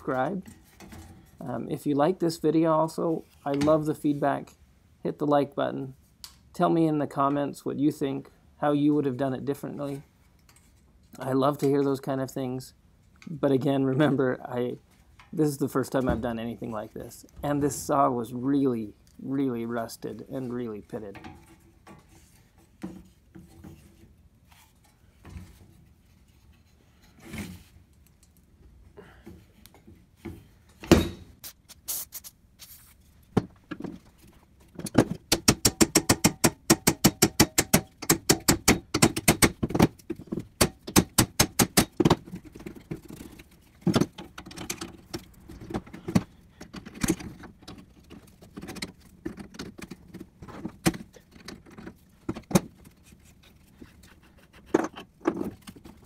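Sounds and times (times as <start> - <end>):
metal clicks and scrapes: 32.2 - 56.0.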